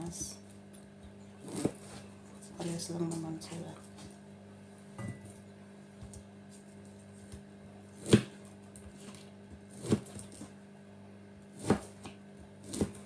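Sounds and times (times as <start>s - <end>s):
knife slicing food: 9.0s - 10.5s, 11.5s - 13.0s.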